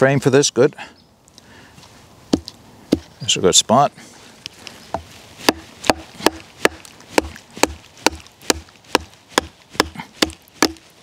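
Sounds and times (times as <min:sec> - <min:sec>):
sharp wooden knocks: 0:02.3 - 0:03.1, 0:04.9 - 0:10.9
baton striking knife through log: 0:05.0 - 0:11.0.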